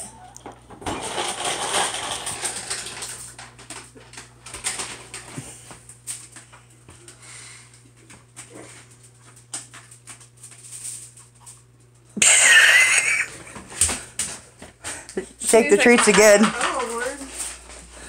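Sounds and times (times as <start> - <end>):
tin foil crinkling: 0.8 - 6.7, 8.4 - 11.7, 14.9 - 18.0.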